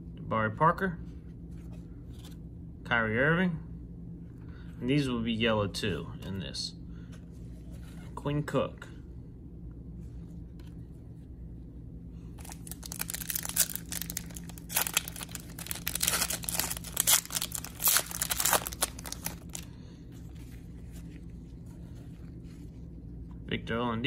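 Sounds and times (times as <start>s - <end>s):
plastic wrapper tearing and crinkling: 12.4s - 19.7s.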